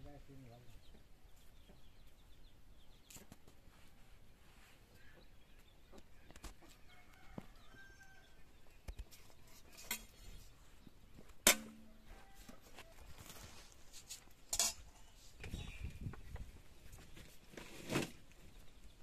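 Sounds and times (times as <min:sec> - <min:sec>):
chickens clucking: 0:00.9 - 0:03.7.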